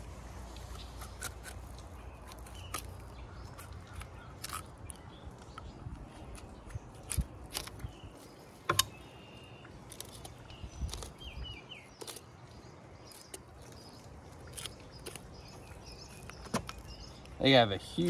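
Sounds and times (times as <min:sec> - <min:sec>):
bird chirping: 0:00.5 - 0:18.0
sharp clicks and knocks: 0:08.6 - 0:09.0.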